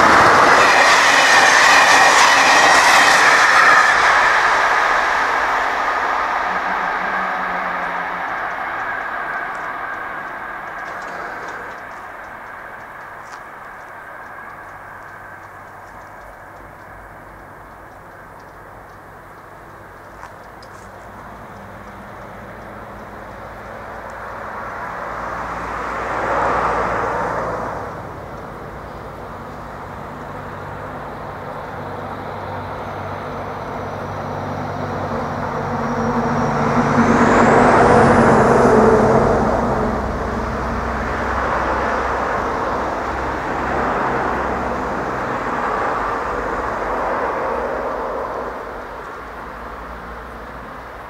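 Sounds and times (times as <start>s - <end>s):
faint high rising whistle: 0.0s - 18.3s
engine noise: 0.0s - 51.0s
road vehicles passing: 0.0s - 51.0s.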